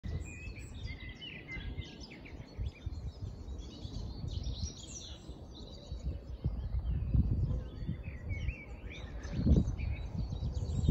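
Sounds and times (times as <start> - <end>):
songbirds singing and chirping: 0.0 - 10.9.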